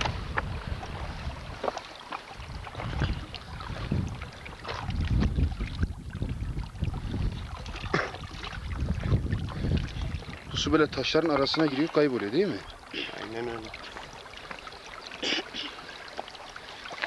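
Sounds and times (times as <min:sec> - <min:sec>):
wind buffeting microphone: 0:00.0 - 0:01.7, 0:02.3 - 0:11.7
shoes on loose stones: 0:00.0 - 0:03.2.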